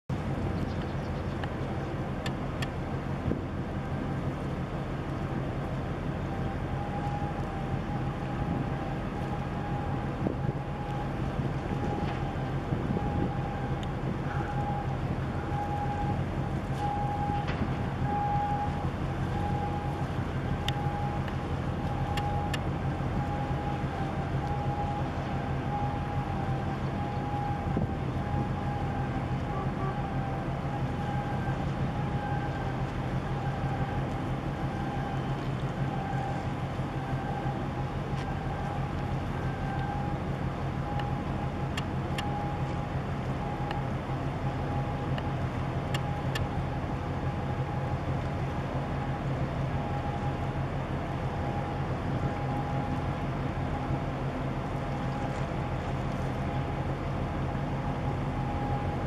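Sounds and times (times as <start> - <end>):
ship engine drone: 0.1 - 59.0
light ticks: 0.4 - 2.8, 13.8 - 14.0, 20.6 - 23.4, 40.9 - 41.1, 41.7 - 43.8, 45.1 - 45.3, 45.9 - 46.6
wind buffeting microphone: 3.2 - 3.6, 8.2 - 16.6, 27.6 - 28.7
faint steady high tone: 23.2 - 40.2.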